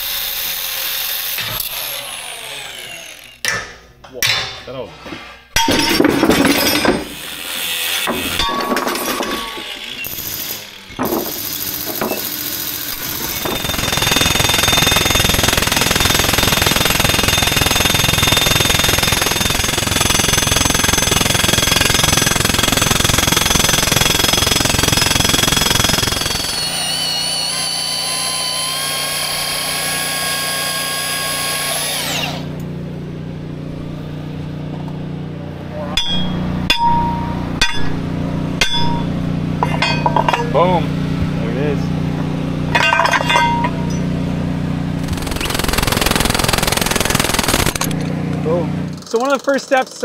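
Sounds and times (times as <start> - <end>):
power tool motor whining: 0.0 - 3.4, 6.8 - 8.5, 9.3 - 32.7, 44.9 - 49.6
loud steady work noise: 0.0 - 50.0.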